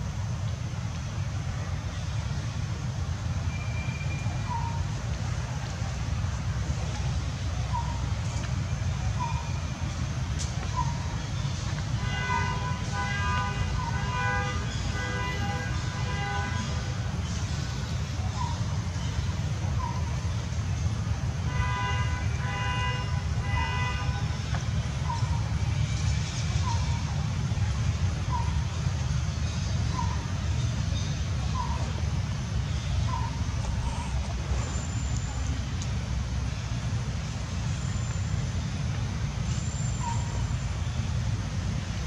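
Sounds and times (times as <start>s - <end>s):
steady low rumble: 0.0s - 12.0s, 24.2s - 42.0s
vehicle horn tooting: 12.0s - 17.2s, 21.4s - 24.5s.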